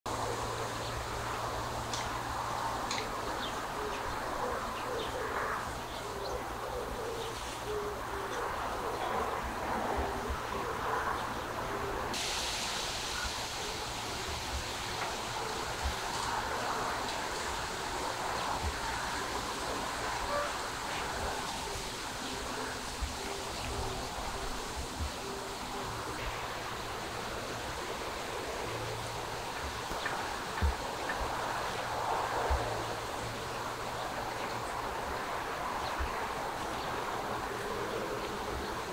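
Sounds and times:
rushing background noise: 0.1 - 38.9
lower repeated bird call: 3.0 - 27.0.

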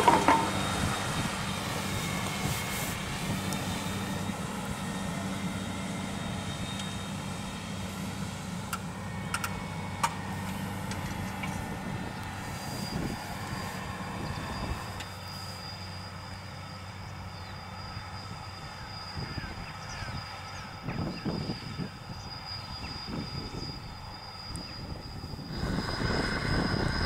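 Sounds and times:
implements knocking: 0.0 - 0.6
thin high whine: 0.0 - 27.0
tractor diesel engine running: 0.0 - 27.0.

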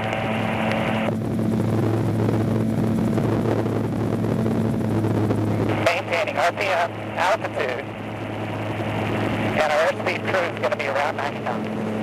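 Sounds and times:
wind noise: 0.0 - 5.9
aircraft engine and propeller drone: 0.0 - 12.0
rotor noise: 0.0 - 12.0.

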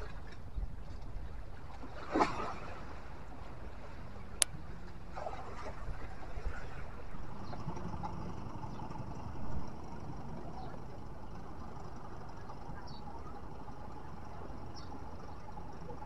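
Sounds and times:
wind rumbling on microphone: 0.0 - 9.7
small waves washing against rocks: 1.7 - 4.0.

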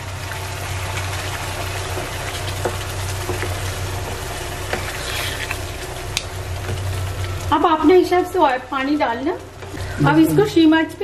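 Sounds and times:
water pouring into a pan: 0.0 - 6.0
curry bubbling: 0.0 - 11.0
wooden spatula scraping a pan: 4.6 - 5.8.

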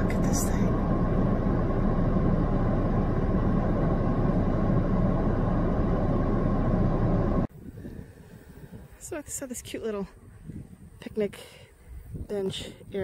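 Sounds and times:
low rumbling noise: 0.0 - 9.0.

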